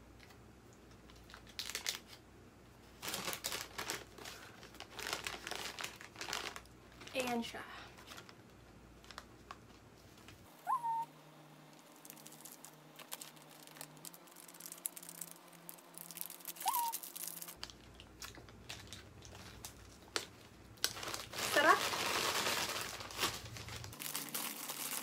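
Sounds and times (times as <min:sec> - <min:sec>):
paper bag crinkling: 0:01.1 - 0:02.2, 0:02.9 - 0:10.4, 0:11.8 - 0:25.0
short rising chirp: 0:10.6 - 0:11.1.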